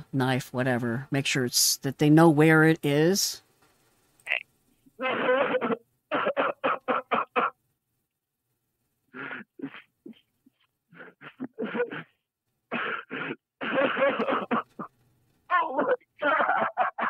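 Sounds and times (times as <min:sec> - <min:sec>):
man sobbing and gasping: 0:05.0 - 0:05.8, 0:09.1 - 0:12.2, 0:15.5 - 0:17.0.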